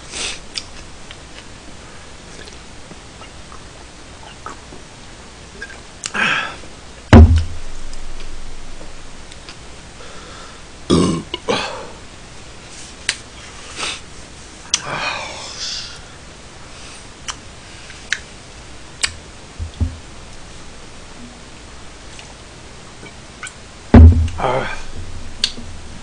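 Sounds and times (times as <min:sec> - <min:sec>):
loud thump: 0:07.1 - 0:09.2, 0:24.0 - 0:25.9
man burping: 0:10.9 - 0:11.9.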